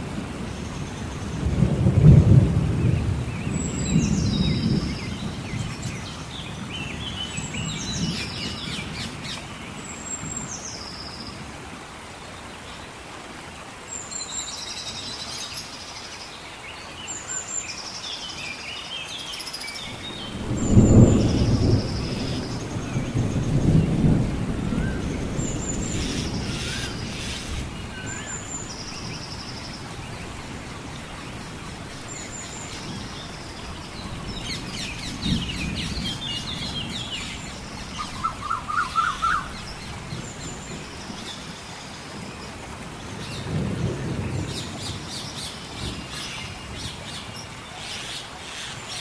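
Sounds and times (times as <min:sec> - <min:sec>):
rain-like hiss: 0:00.0 - 0:49.0
thunder rolling: 0:01.4 - 0:06.0, 0:20.2 - 0:27.8, 0:34.1 - 0:38.5
birds chirping: 0:24.9 - 0:42.5.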